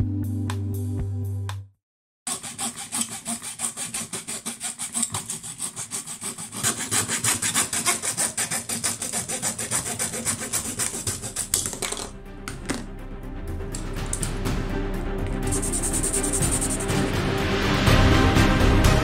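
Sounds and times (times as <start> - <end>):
hacksaw cutting plastic: 2.3 - 12.9, 13.8 - 14.4, 15.3 - 17.0.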